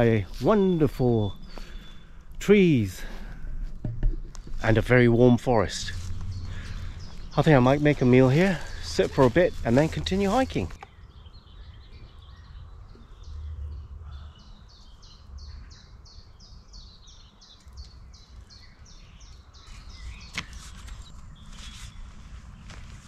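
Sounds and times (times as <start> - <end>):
songbird singing high notes: 0.0 - 2.8.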